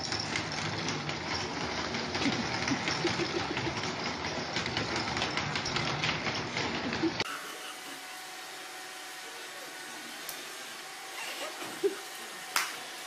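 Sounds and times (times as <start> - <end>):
plastic walker rattling over tile: 0.0 - 7.2.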